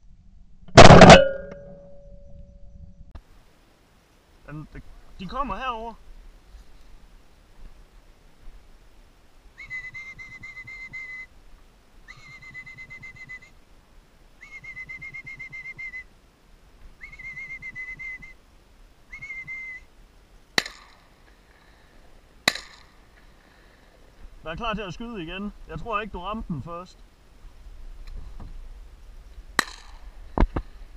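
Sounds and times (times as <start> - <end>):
shotgun shots: 0.8 - 1.4, 22.4 - 22.9, 29.6 - 30.0
whistled notes: 9.6 - 11.3, 12.1 - 13.5, 14.4 - 16.1, 17.0 - 18.4, 19.1 - 19.9.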